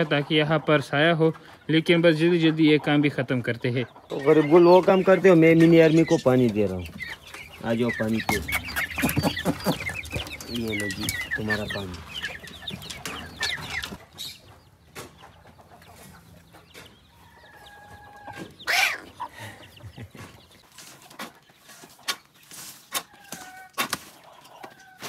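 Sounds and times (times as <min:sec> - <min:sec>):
chickens clucking: 0:00.0 - 0:25.0
chicken squawk: 0:03.9 - 0:14.4, 0:17.1 - 0:20.3, 0:22.9 - 0:25.0.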